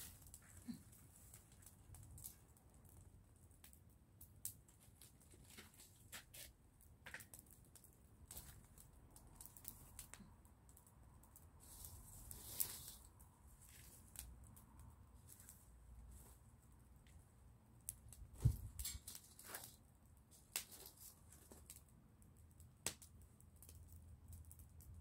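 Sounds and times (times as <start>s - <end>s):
fire hissing: 0.0s - 1.4s, 11.5s - 14.4s
fire crackling and popping: 0.0s - 25.0s.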